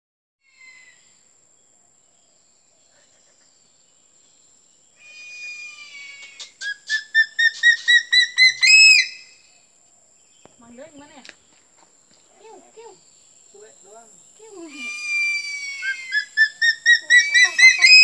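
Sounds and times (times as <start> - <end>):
eagle whistling calls: 5.0 - 9.4, 14.8 - 18.0.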